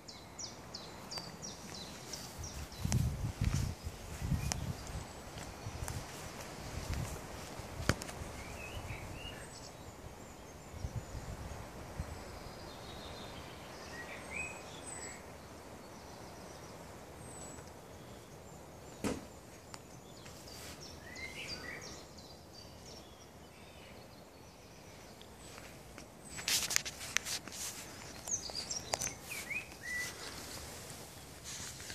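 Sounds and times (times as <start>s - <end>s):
faint outdoor ambience: 0.0s - 31.9s
small birds chirping: 0.0s - 31.9s
sharp knock: 19.0s - 19.3s.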